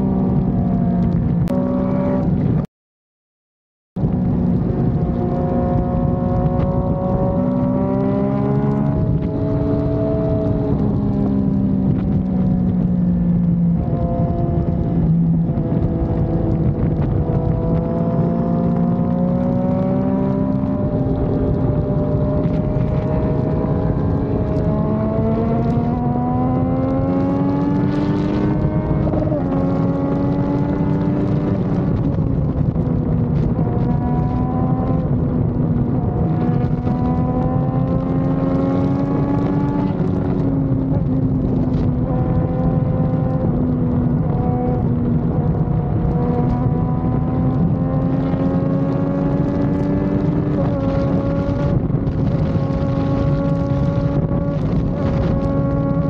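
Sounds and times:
motorcycle engine at speed: 0.0s - 2.7s, 4.0s - 56.0s.

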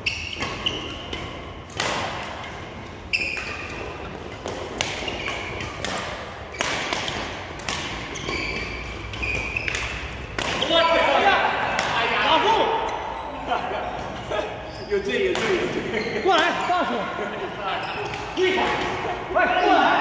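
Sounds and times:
shoes squeaking on floor: 0.0s - 1.6s, 2.7s - 11.2s, 12.8s - 17.0s, 17.7s - 18.6s
racquet hitting shuttlecock: 0.1s - 12.2s.

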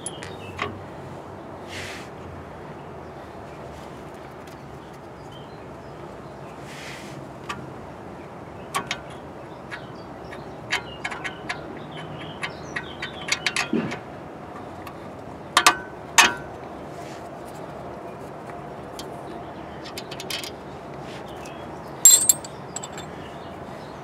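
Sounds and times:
metal clicks and clinks: 22.1s - 23.1s.

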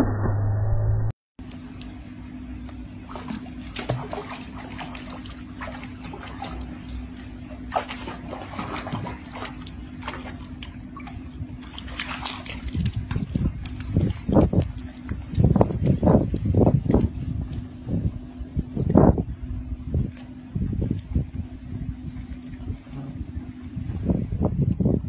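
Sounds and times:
steady low hum: 0.0s - 25.0s
water splashing and sloshing: 1.4s - 25.0s.

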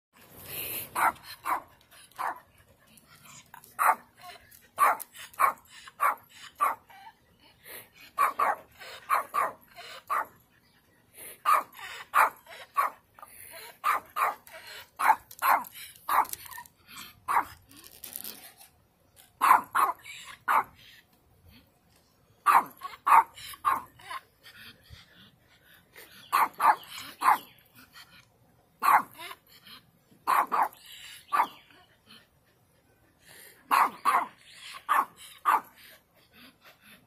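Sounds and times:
small dog barking: 1.0s - 2.4s, 3.8s - 4.1s, 4.8s - 6.8s, 8.2s - 10.3s, 13.8s - 14.4s, 17.3s - 17.5s, 19.4s - 20.7s, 22.5s - 23.9s, 26.3s - 27.5s, 28.8s - 29.2s, 30.3s - 31.6s, 33.7s - 35.7s.

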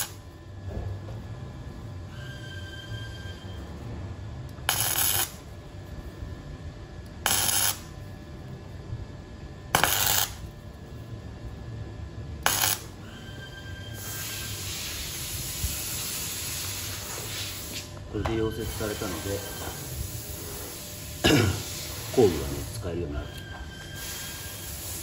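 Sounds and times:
arc welder crackling bursts: 0.0s - 0.3s, 4.6s - 5.6s, 7.1s - 8.0s, 9.7s - 10.5s, 12.4s - 23.1s, 24.0s - 25.0s
steady hiss: 14.0s - 23.1s, 24.0s - 25.0s.

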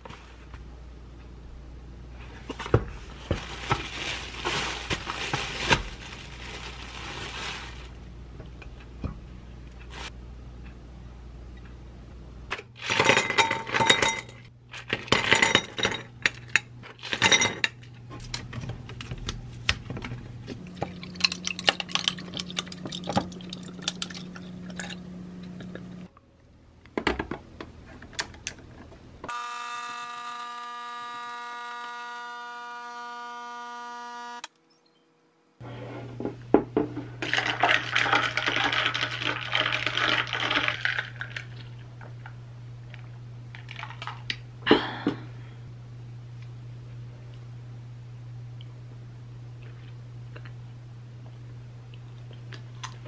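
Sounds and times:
coffee machine pump humming: 20.5s - 26.1s
straw stirring ice in glass: 20.6s - 25.0s, 37.2s - 41.7s
ice cubes clattering into glass: 37.2s - 41.5s.

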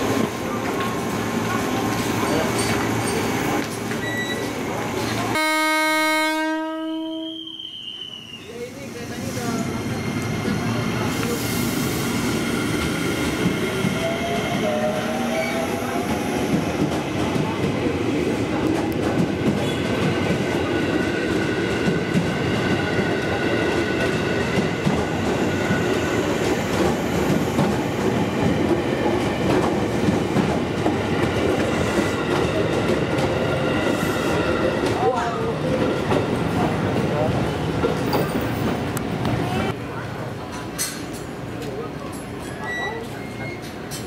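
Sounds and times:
clickety-clack over rail joints: 0.0s - 4.5s, 16.5s - 17.9s, 18.5s - 20.6s, 24.0s - 33.4s, 40.5s - 44.0s
train wheels rumbling on rails: 0.0s - 5.4s, 8.0s - 44.0s.

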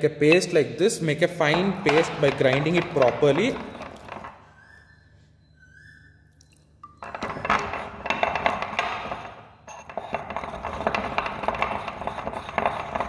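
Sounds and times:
pestle grinding in mortar: 1.5s - 4.4s, 7.0s - 13.0s.

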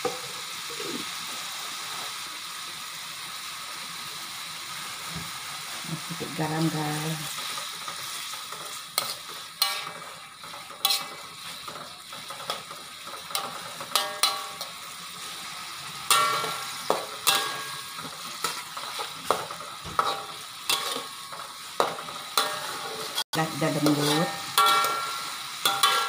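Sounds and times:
mushrooms sizzling in oil: 0.0s - 26.0s
metal spatula scraping wok: 6.4s - 26.0s.

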